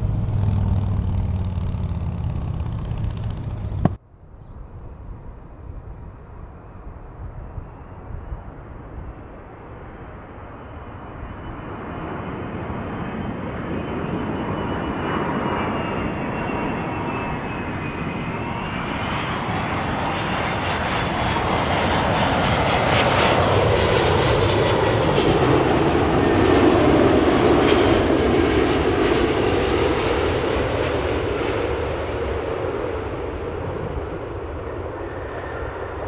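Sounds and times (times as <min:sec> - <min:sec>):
high jet engine whine: 0:00.0 - 0:04.0, 0:04.6 - 0:36.0
jet airliner passing: 0:00.0 - 0:04.0, 0:04.6 - 0:36.0.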